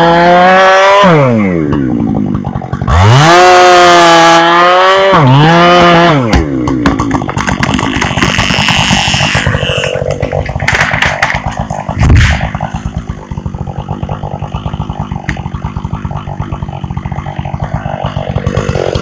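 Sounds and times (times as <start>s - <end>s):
chainsaw revving: 0.0s - 19.0s
tree cracking: 6.5s - 19.0s.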